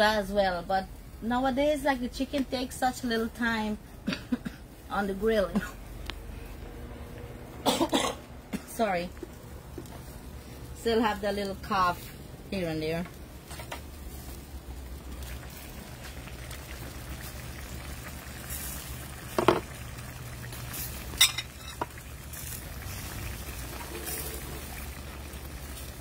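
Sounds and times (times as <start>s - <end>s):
curry bubbling in skillet: 13.2s - 26.0s.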